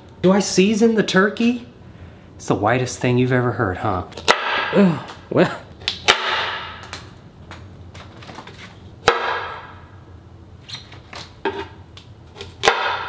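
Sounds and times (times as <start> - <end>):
knife chopping on plastic board: 9.0 - 9.7, 12.4 - 13.0.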